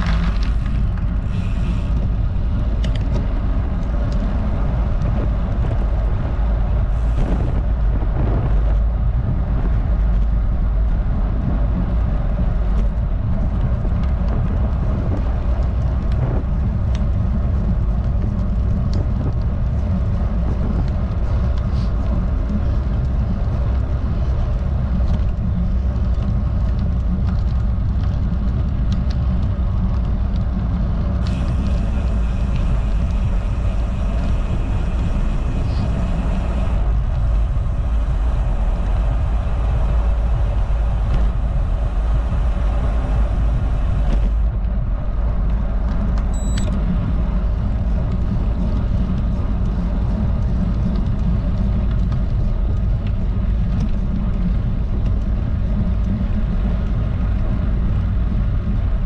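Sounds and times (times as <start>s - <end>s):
wind buffeting microphone: 0.0s - 59.0s
bicycle freewheel hiss: 0.1s - 2.1s, 31.2s - 44.4s.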